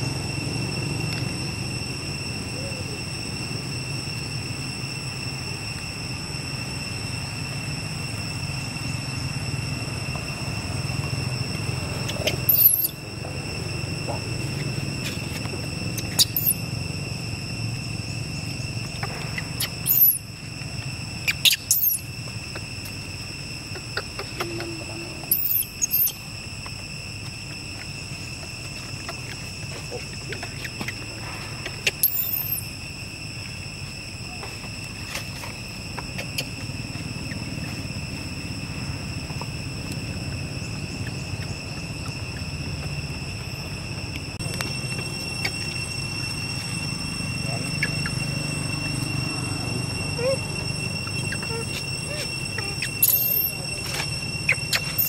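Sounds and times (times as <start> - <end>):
steady high-pitched whine: 0.0 - 55.0
young monkeys squeaking: 11.9 - 16.7, 18.5 - 20.6, 21.2 - 26.6, 27.6 - 32.8, 35.8 - 38.1, 45.1 - 55.0.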